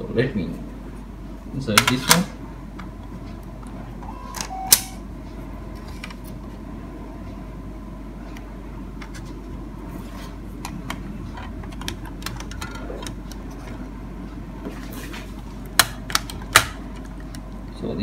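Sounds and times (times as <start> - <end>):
steady low hum: 0.0 - 18.0
plastic clicks and handling: 10.6 - 13.7, 15.7 - 17.5.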